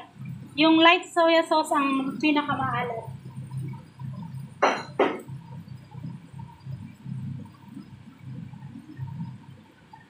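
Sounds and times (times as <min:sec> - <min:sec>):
hob and range hood rumble: 0:00.0 - 0:05.4
sharp knocks: 0:04.6 - 0:05.2.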